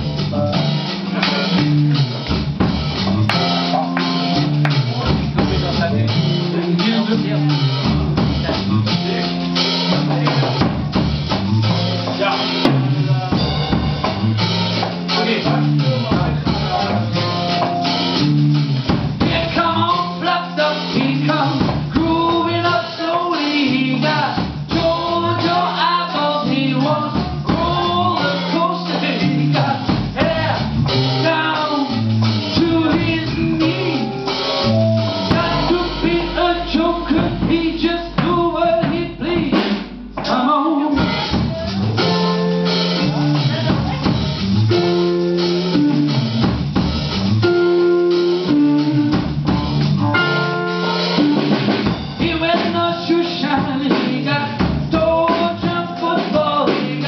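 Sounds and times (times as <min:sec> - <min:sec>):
drum kit: 0:00.0 - 0:57.0
electric bass line: 0:00.0 - 0:57.0
person singing: 0:19.2 - 0:44.0, 0:52.2 - 0:57.0
electric guitar: 0:26.9 - 0:38.4, 0:39.5 - 0:52.0.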